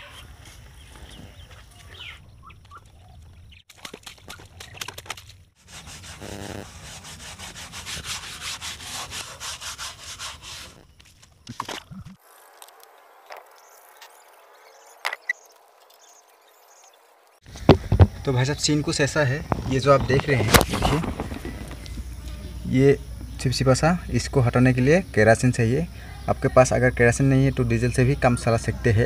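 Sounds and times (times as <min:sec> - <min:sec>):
scrubbing wet wheel: 0:03.7 - 0:12.8.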